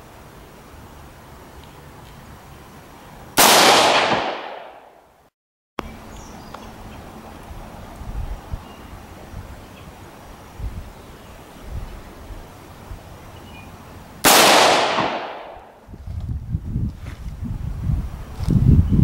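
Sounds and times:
rifle shot echoing: 0:03.4 - 0:05.0, 0:14.2 - 0:15.8.

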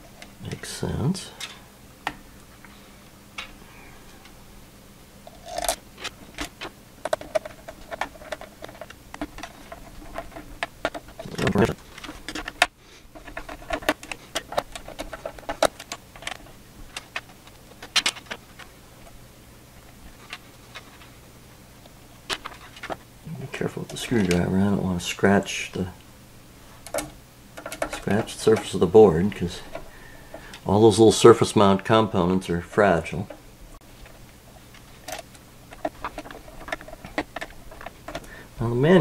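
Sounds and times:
small hard parts clicking and rattling: 0:05.2 - 0:19.2, 0:22.2 - 0:23.0, 0:26.8 - 0:31.2, 0:34.0 - 0:39.0.

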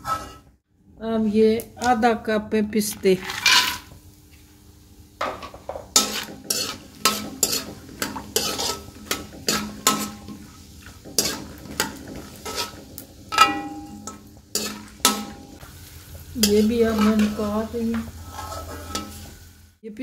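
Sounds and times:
metal spoon scraping a wok: 0:00.0 - 0:00.4, 0:03.2 - 0:03.9, 0:05.9 - 0:15.6, 0:16.4 - 0:19.5
light frying sizzle: 0:03.0 - 0:19.8.

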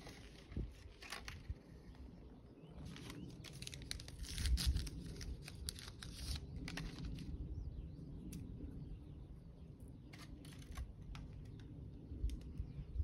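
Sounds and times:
plastic and paper wrapping crinkling: 0:00.0 - 0:01.6, 0:02.8 - 0:07.3.

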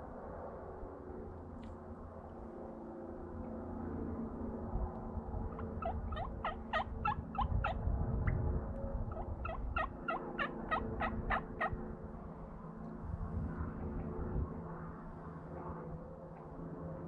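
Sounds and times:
turkey yelping: 0:05.6 - 0:07.8, 0:09.1 - 0:11.8.

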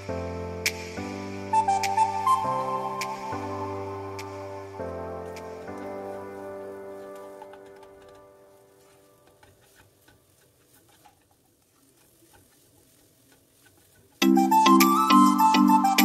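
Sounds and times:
background music: 0:00.0 - 0:09.8, 0:14.2 - 0:16.0
spatula stirring in a pan: 0:08.8 - 0:14.2.

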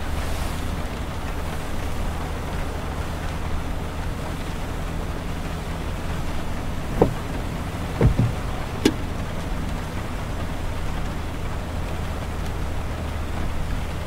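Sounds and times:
low engine hum: 0:00.0 - 0:14.0
tyres on wet road: 0:00.0 - 0:14.0
windshield wipers knocking: 0:04.9 - 0:10.1.

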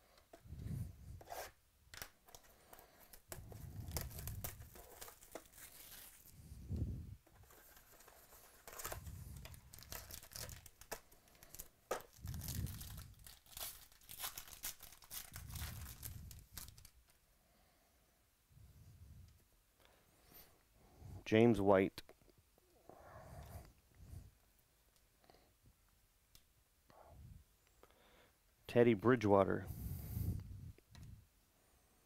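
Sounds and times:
plastic and foil packaging tearing: 0:03.4 - 0:06.4, 0:07.4 - 0:17.0.

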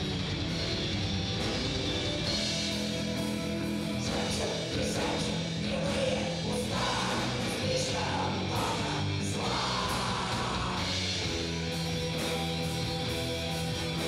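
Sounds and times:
metal band playing live: 0:00.0 - 0:14.0
vocals: 0:02.7 - 0:11.6.

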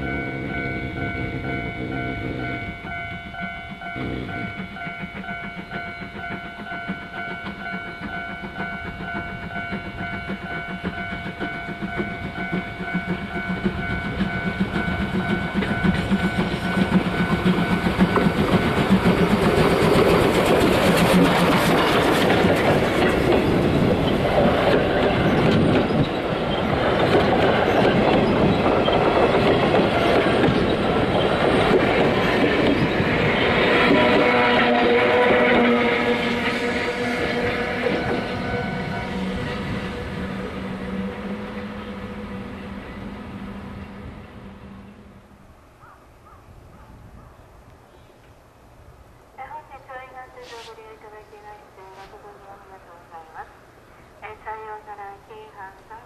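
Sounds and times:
bell-like ringing: 0:00.0 - 0:17.8
train wheels clacking over rail joints: 0:00.0 - 0:40.1
steam locomotive exhaust beats: 0:00.0 - 0:45.5.

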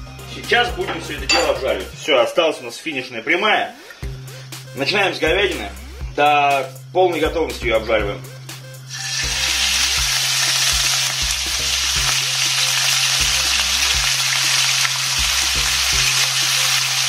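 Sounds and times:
meat and vegetables sizzling in oil: 0:08.9 - 0:17.0.

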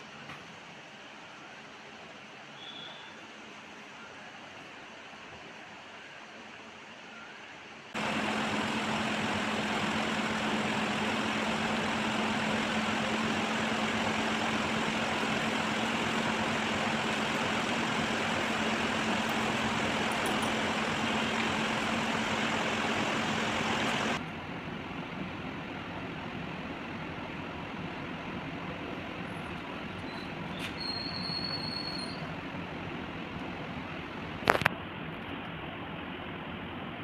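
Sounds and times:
low machine hum: 0:08.0 - 0:30.3.

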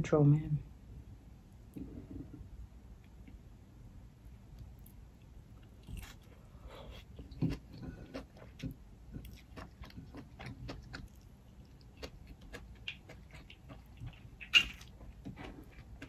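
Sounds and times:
chewing and mouth smacks: 0:07.0 - 0:16.0.

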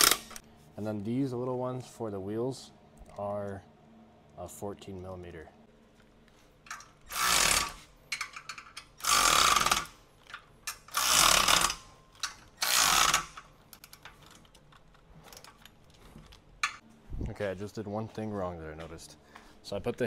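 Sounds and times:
socket wrench bursts: 0:00.0 - 0:00.4.

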